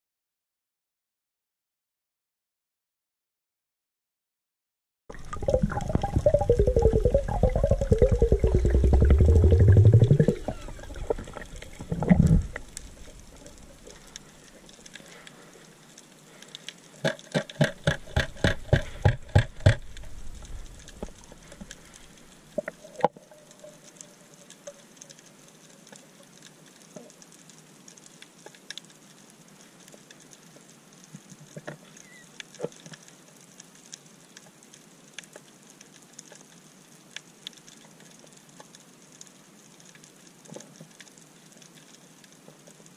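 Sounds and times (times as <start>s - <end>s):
loud low rising tone underwater: 5.1s - 13.4s
faint scattered crackling: 5.1s - 42.9s.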